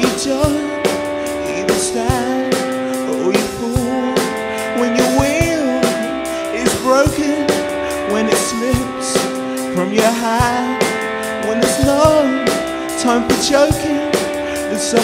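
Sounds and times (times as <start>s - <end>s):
person singing: 0.0s - 15.0s
song with drum beat: 0.0s - 15.0s.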